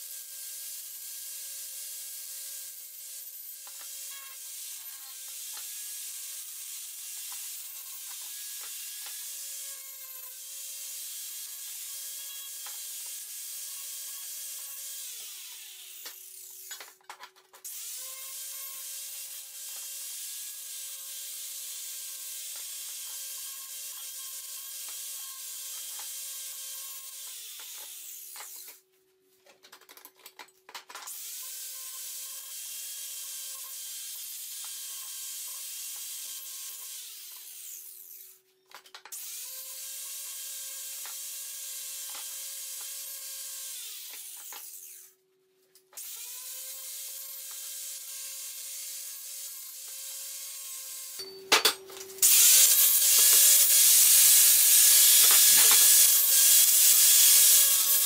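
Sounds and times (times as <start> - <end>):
angle grinder grinding steel: 3.6 - 10.4, 46.0 - 58.0
grinder spinning down: 52.2 - 58.0.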